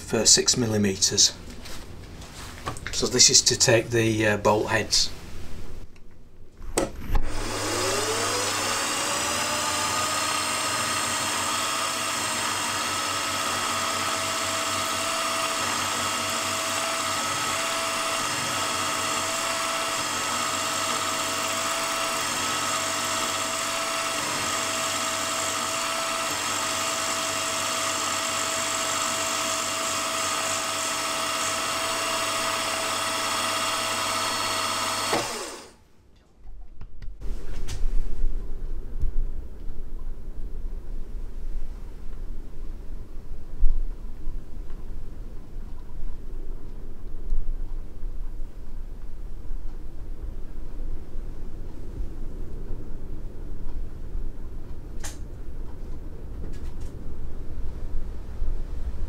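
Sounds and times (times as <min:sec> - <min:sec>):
milling spindle whine: 0:07.1 - 0:35.7
end mill cutting aluminium: 0:07.2 - 0:35.8.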